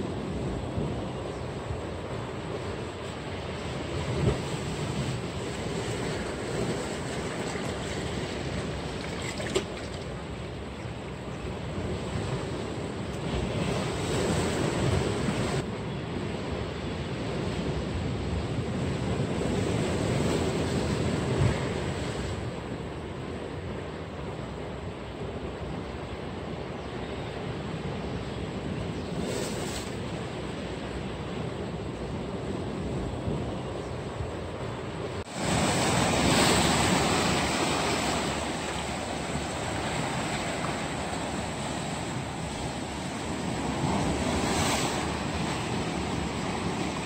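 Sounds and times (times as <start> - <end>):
wind rumbling on microphone: 0.0 - 24.6
surf washing: 0.0 - 25.4, 28.5 - 47.0
seawater washing over rocks: 4.2 - 10.2, 35.3 - 47.0.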